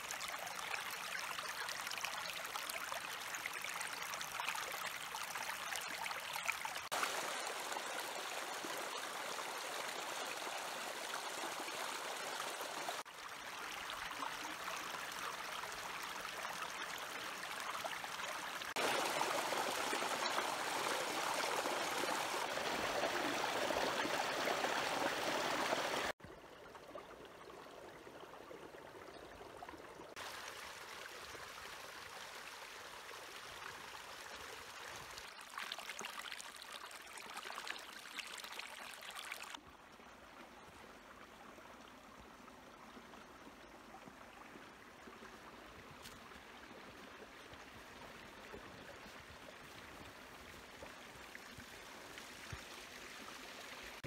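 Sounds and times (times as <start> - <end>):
running water rushing: 0.0 - 26.2.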